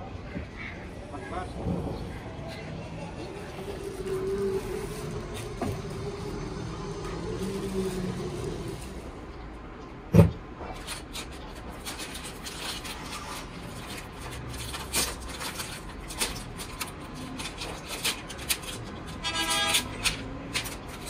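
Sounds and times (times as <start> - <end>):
paper and plastic crackling: 3.2 - 9.2, 10.7 - 21.0
vehicle horn: 19.2 - 20.0.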